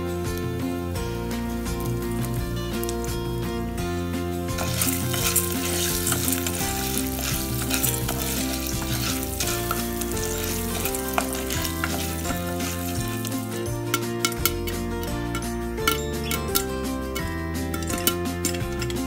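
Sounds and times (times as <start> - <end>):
background music: 0.0 - 19.0
wooden spoon stirring: 4.6 - 13.7
popcorn sizzling in hot oil: 4.6 - 14.6.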